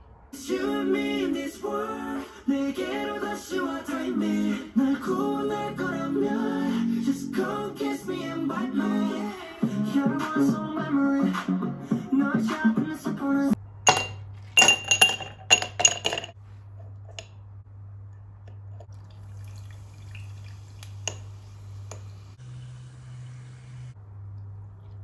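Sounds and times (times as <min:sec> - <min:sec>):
background music: 0:00.4 - 0:13.6
faint low hum: 0:13.6 - 0:25.0.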